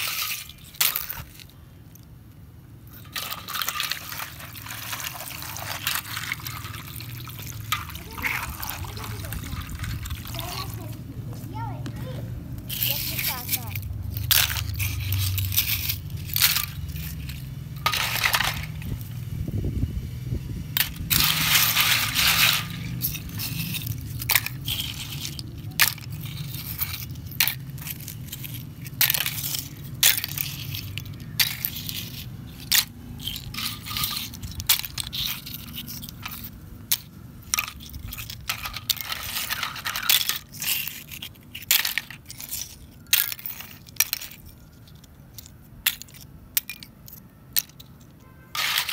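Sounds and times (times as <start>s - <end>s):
seashells clinking in steel basin: 0.0s - 11.8s, 12.6s - 19.2s, 20.7s - 48.9s
grinding rasps: 20.7s - 44.6s.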